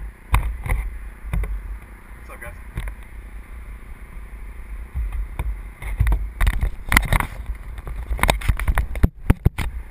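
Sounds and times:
wind buffeting microphone: 0:02.7 - 0:09.9
knocks and rustles of handling: 0:05.0 - 0:09.8.

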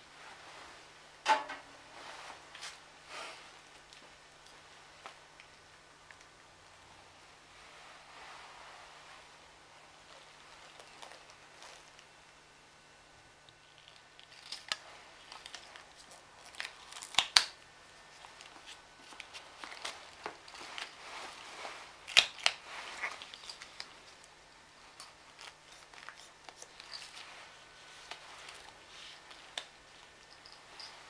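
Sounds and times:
tape rustling and crinkling: 0:10.0 - 0:12.2, 0:13.5 - 0:31.0.

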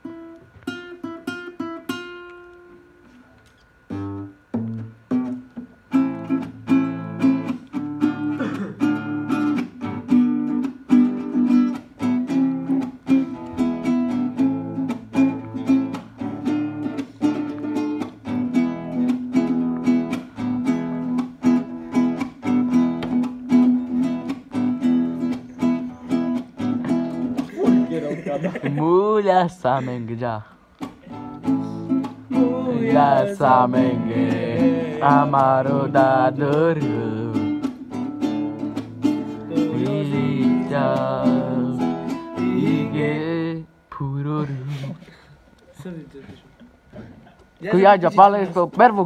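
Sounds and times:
guitar chords strummed: 0:00.0 - 0:03.2, 0:03.9 - 0:28.8, 0:30.8 - 0:44.2
plucked guitar notes: 0:03.9 - 0:28.2, 0:30.8 - 0:43.5.

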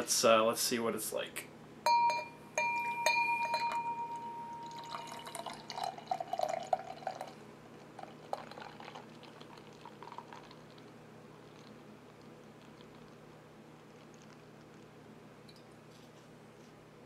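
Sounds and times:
glass clink ringing: 0:01.9 - 0:07.3
beer glugging and splashing: 0:04.6 - 0:15.0.

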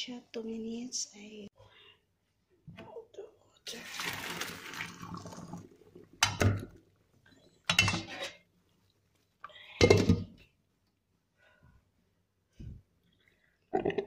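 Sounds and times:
water rushing through colander: 0:03.7 - 0:08.1
metal cookware clanking: 0:07.7 - 0:08.4.

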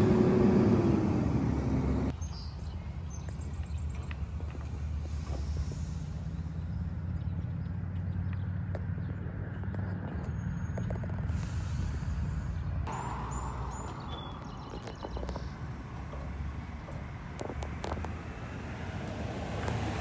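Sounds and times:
garbage truck diesel engine rumble: 0:00.0 - 0:02.1, 0:03.1 - 0:20.0
hiss: 0:05.1 - 0:06.3, 0:11.3 - 0:12.5.

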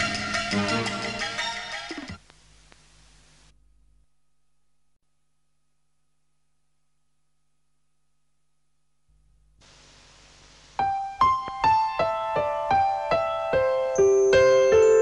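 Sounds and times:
electric piano jingle: 0:11.1 - 0:15.0.

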